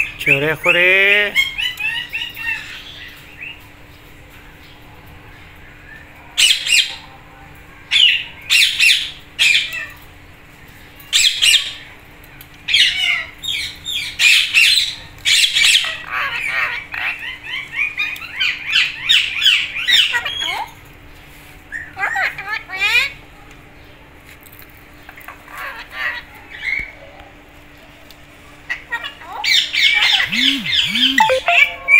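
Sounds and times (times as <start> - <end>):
parakeets calling: 28.7 - 31.2
parakeets chattering: 28.7 - 31.2.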